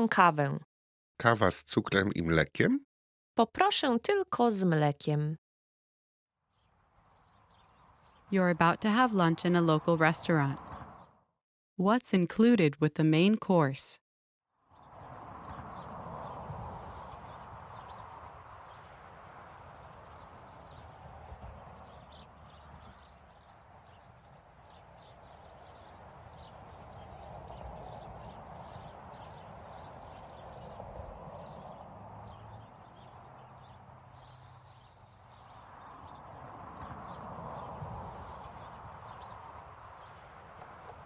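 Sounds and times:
soft street noise: 0:14.6 - 0:41.0.

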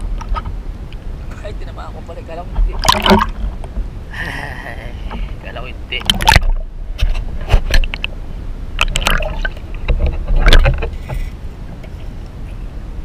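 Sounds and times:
sharp underwater clicks and knocks: 0:00.0 - 0:01.4, 0:02.5 - 0:03.9, 0:06.0 - 0:08.2, 0:08.8 - 0:12.4
low rumble of moving water: 0:00.0 - 0:13.0.

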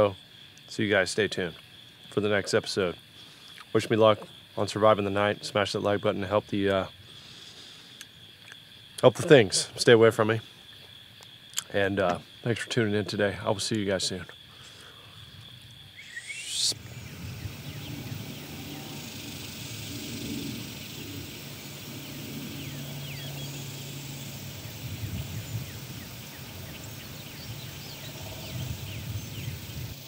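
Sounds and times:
high insect trill: 0:00.0 - 0:30.0
high bird chirps: 0:15.9 - 0:30.0
low steady hum: 0:16.6 - 0:29.3.

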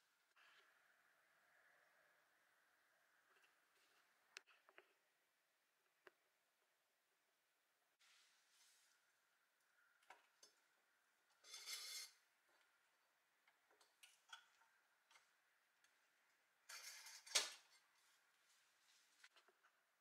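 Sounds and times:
steel wire scraping metal: 0:11.3 - 0:12.4, 0:16.6 - 0:17.9.

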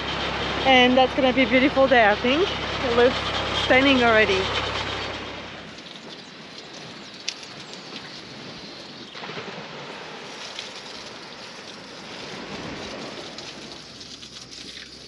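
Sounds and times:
high-pressure hose spraying: 0:10.3 - 0:15.0.

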